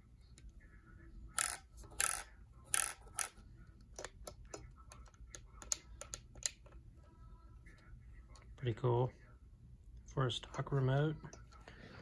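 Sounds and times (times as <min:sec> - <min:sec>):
plastic controller clicking: 0:01.4 - 0:06.8.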